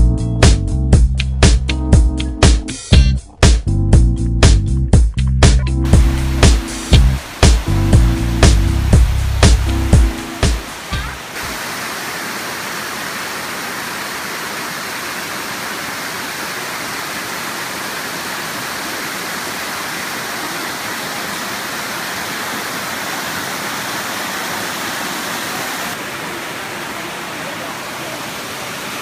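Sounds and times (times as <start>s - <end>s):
water rushing over rocks: 5.9s - 29.0s.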